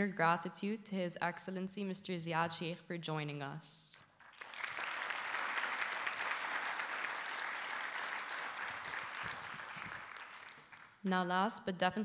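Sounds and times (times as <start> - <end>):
audience applauding: 4.2 - 11.0.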